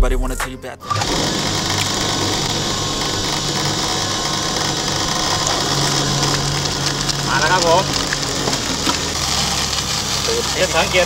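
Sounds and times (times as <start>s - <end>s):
electric water pump whirring: 0.8s - 11.0s.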